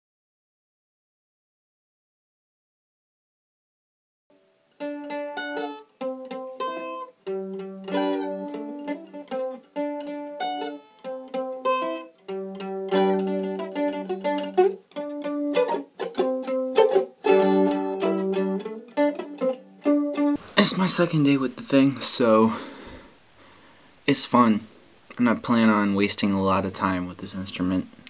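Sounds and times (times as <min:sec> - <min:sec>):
mandolin picking: 0:04.4 - 0:23.0.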